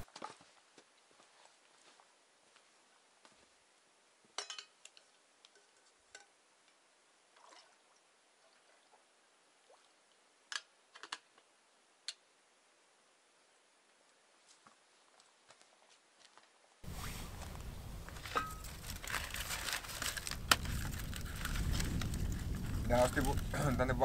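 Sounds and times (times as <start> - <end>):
camping pot clinking: 4.3 - 6.4, 16.9 - 23.8.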